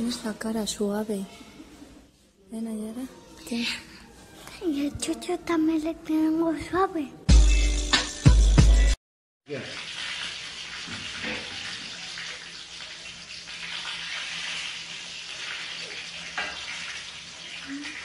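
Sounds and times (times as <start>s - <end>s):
loud bass-heavy music: 7.3s - 9.0s.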